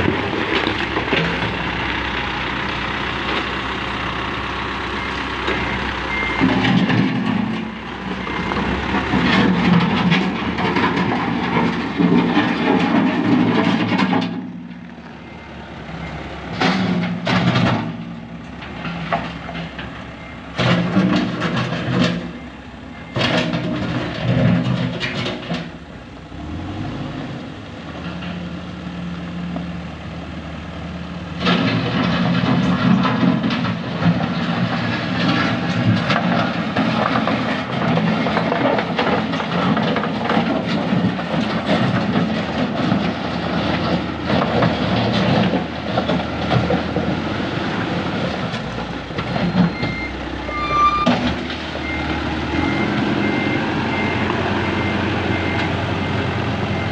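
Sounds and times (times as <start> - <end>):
diesel engine under load: 0.0 - 56.9
reversing alarm beeping: 5.0 - 6.6, 49.4 - 51.2, 51.8 - 56.9.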